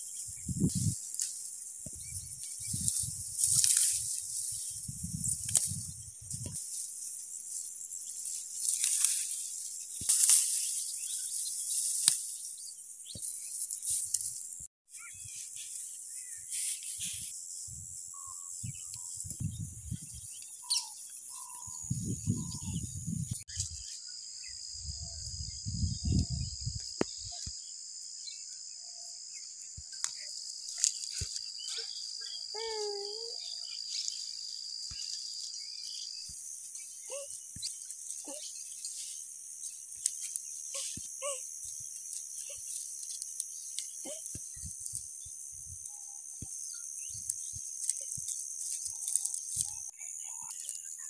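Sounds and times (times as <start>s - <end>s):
insects chirring: 0.0s - 51.0s
bird chirps: 18.1s - 41.4s.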